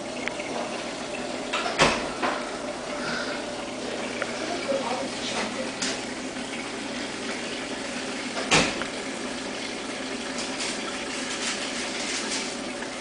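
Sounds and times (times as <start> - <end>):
aquarium water circulating: 0.0 - 13.0.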